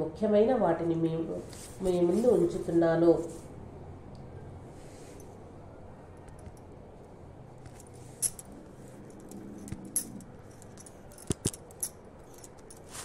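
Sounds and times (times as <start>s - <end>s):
faint room noise: 0.0s - 13.0s
light clicks and rattles: 7.6s - 13.0s.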